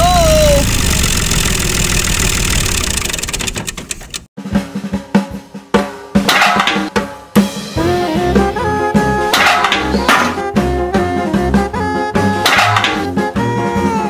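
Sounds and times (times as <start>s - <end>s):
tractor engine running: 0.0s - 4.3s
music with drum beat: 4.4s - 14.0s.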